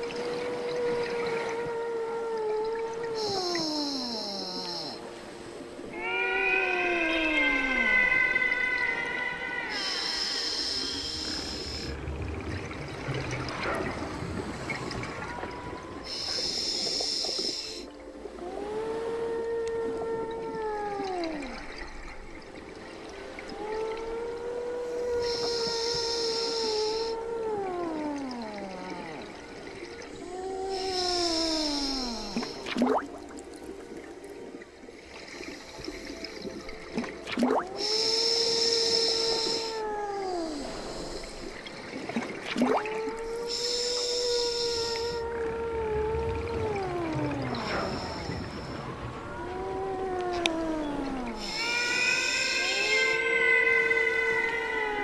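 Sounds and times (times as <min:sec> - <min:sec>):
exhaled bubbles rumbling: 0:05.9 - 0:55.0
regulator inhale hissing: 0:09.8 - 0:12.0, 0:16.1 - 0:17.8, 0:25.2 - 0:27.1, 0:37.8 - 0:39.8, 0:43.5 - 0:45.2.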